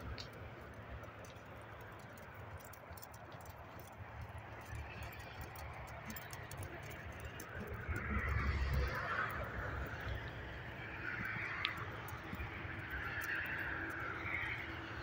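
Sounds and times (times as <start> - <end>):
horse hoofbeats on sand: 0.0 - 15.0
light ticks: 0.0 - 15.0.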